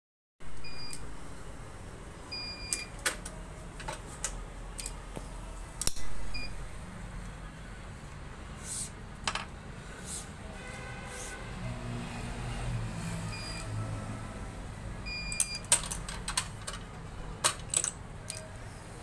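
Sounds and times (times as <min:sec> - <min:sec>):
stringing machine beeping: 0:13.2 - 0:13.8, 0:15.1 - 0:15.7.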